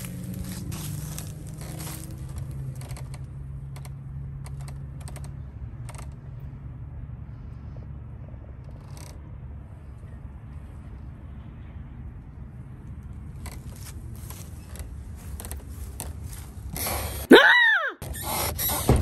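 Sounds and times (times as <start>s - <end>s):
footsteps on dry grass: 0.0s - 3.1s, 13.4s - 17.3s.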